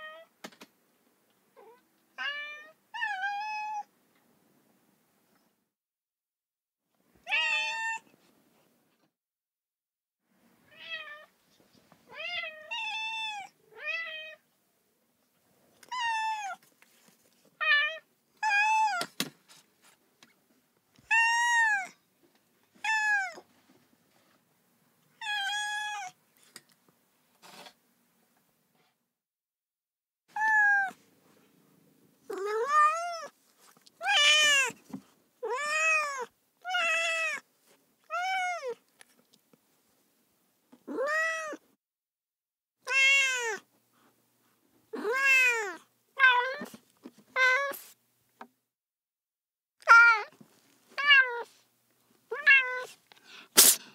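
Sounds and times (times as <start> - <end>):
cat meowing: 1.6 - 3.9, 7.3 - 8.1, 15.8 - 16.6, 21.1 - 22.0, 22.8 - 23.5, 25.2 - 26.2, 30.3 - 31.0, 32.3 - 33.3, 34.0 - 34.8, 35.4 - 37.4, 38.0 - 38.8, 40.8 - 41.6, 42.8 - 43.7, 44.9 - 46.7, 49.8 - 50.3, 51.0 - 51.5, 52.3 - 53.0.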